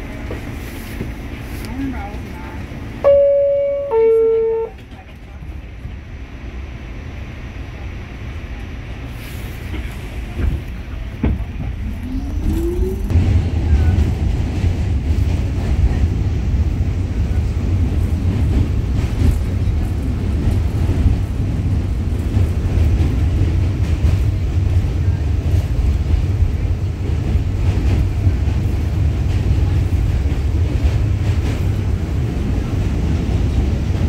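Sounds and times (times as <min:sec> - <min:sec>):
train wheels rumbling on track: 0:00.0 - 0:34.0.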